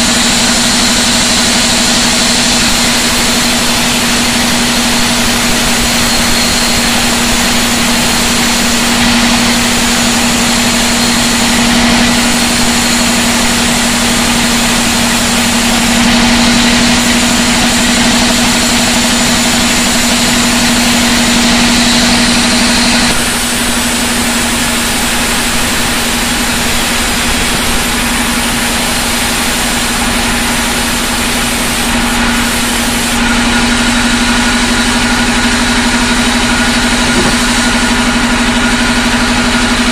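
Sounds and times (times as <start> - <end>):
band saw humming: 0.0 - 39.9
saw blade whine: 0.0 - 39.9.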